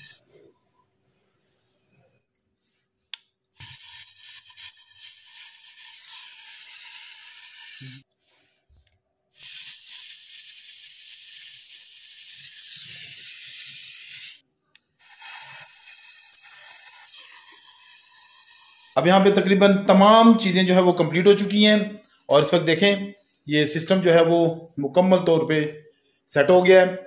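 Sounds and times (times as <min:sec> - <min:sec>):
torch flame hissing: 0:03.6 - 0:08.1, 0:15.0 - 0:19.0.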